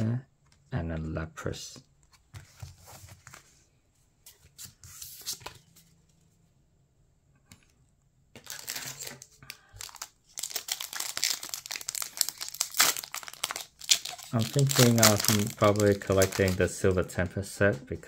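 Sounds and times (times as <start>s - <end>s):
foil wrapper crinkling and tearing: 8.4s - 16.7s
cards rustling: 8.4s - 17.8s.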